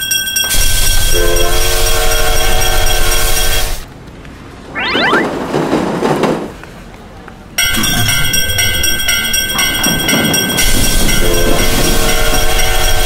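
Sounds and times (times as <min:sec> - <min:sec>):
crossing alarm bell clanging: 0:00.0 - 0:03.8, 0:07.6 - 0:13.0
loud steam hiss: 0:00.6 - 0:03.8
steam train whistle: 0:00.6 - 0:03.8, 0:10.9 - 0:13.0.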